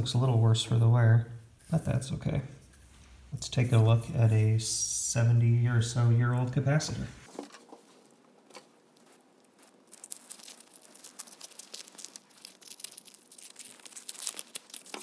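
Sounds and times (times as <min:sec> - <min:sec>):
foil and paper crackling: 0:08.0 - 0:15.0.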